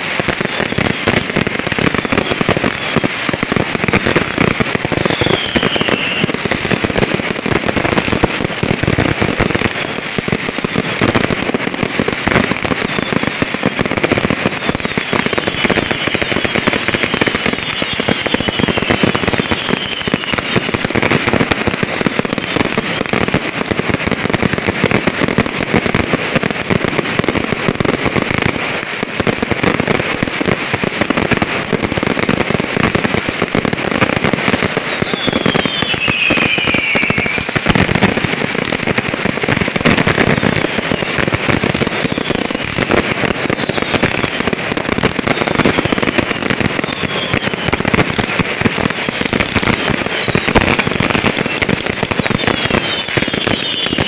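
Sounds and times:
fireworks crackling and popping: 0.0s - 54.0s
fireworks whistles falling in pitch: 0.0s - 54.0s.

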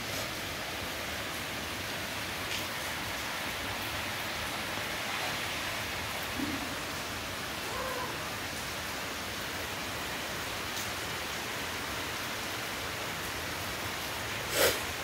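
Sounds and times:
steady hiss: 11.7s - 15.0s.

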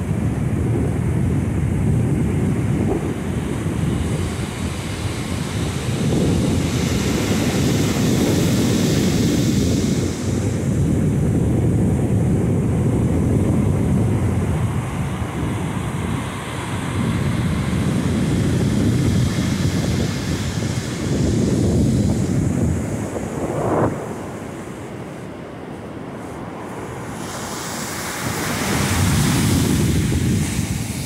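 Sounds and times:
wind buffeting microphone: 0.0s - 31.0s
ocean surf hiss: 2.7s - 11.4s, 14.2s - 31.0s.

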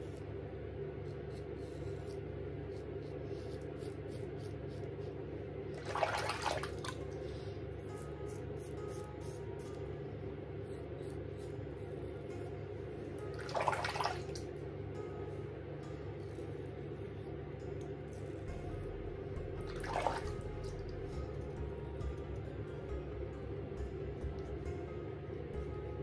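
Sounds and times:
quiet background music: 0.0s - 26.0s
razor scraping stubble: 1.0s - 5.3s, 7.8s - 9.9s, 10.5s - 12.8s.

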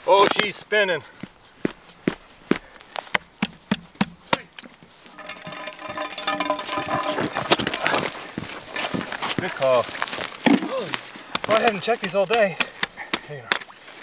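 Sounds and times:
scraping and rustling: 4.8s - 11.2s.

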